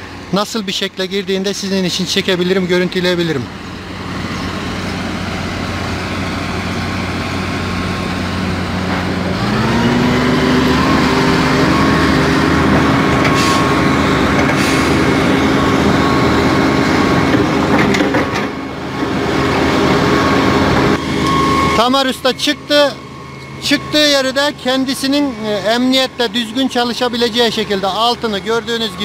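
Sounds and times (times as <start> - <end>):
dump truck engine: 0.0 - 29.0
excavator diesel engine: 0.0 - 29.0.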